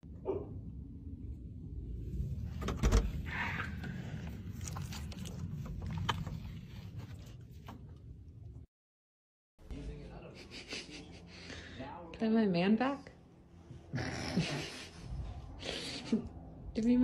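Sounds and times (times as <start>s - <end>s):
steady low rumble: 0.0s - 8.7s, 14.6s - 17.0s.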